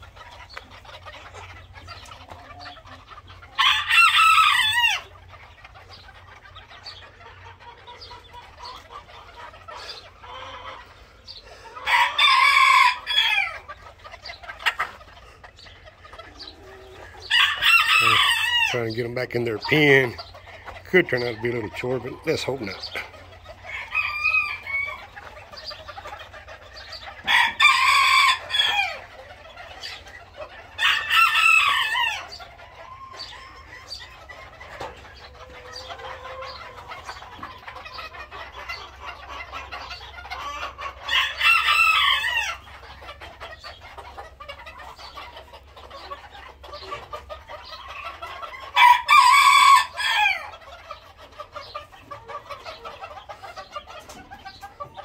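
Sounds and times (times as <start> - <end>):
hens clucking and chattering: 0.0 - 55.0
rooster crowing: 3.6 - 5.0, 11.8 - 13.5, 17.2 - 18.7, 27.2 - 29.0, 48.8 - 50.5.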